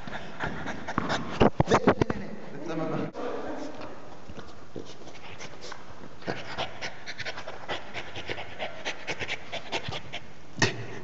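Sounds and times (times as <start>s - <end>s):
dog panting: 0.0s - 1.5s, 5.0s - 10.3s.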